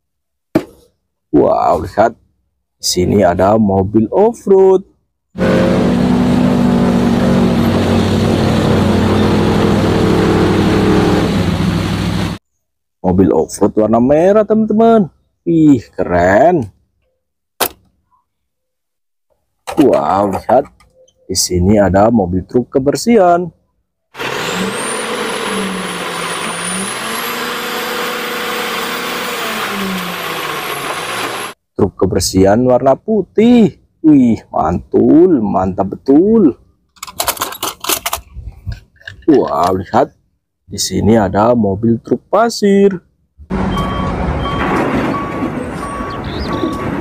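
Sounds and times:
engine droning under load: 0:05.4 - 0:12.4, 0:24.2 - 0:31.6, 0:43.5 - 0:47.0
hydraulic whine: 0:05.4 - 0:12.4, 0:24.2 - 0:31.6.

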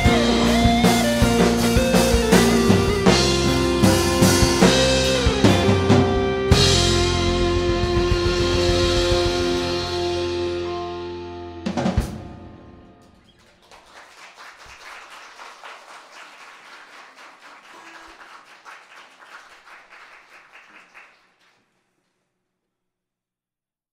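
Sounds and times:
drum kit and cymbals hit: 0:00.0 - 0:10.6
live band final chord ringing: 0:00.0 - 0:13.2
audience clapping: 0:13.2 - 0:21.9.

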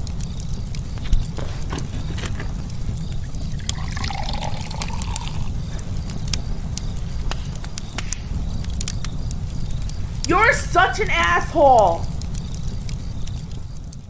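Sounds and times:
fire crackling and popping: 0:00.0 - 0:14.0
drink pouring into shot glass: 0:03.6 - 0:05.5.

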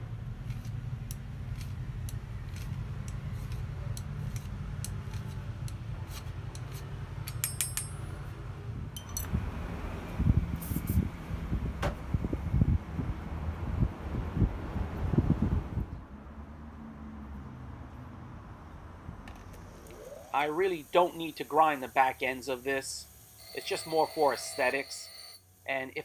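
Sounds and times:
low steady hum: 0:00.0 - 0:16.3
ringing metal clinks: 0:07.3 - 0:08.1, 0:09.0 - 0:09.3
spray can hiss: 0:10.6 - 0:11.1, 0:19.9 - 0:25.0.

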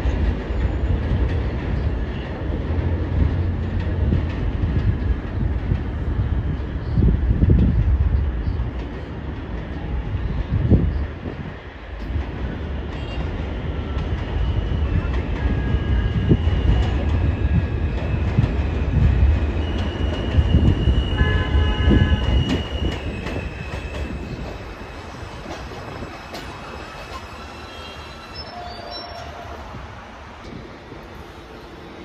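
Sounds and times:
train wheels rumbling on track: 0:00.0 - 0:32.0
high-pitched wheel squeals: 0:25.8 - 0:29.6.

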